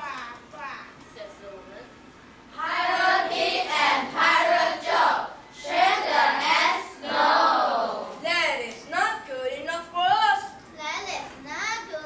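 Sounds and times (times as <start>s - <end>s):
children chanting in unison: 2.6s - 8.1s.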